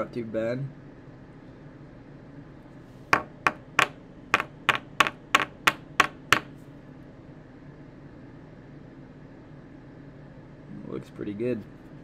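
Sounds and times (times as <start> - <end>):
plastic holder tapping on wooden desk: 3.2 - 6.5.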